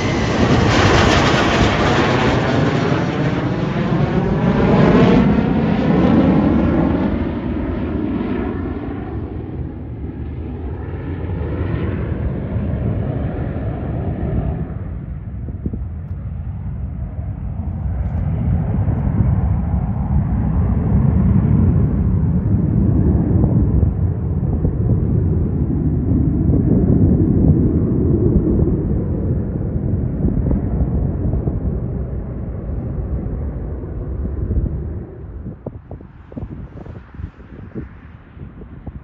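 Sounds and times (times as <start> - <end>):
jet engine rumble: 0.0 - 39.0.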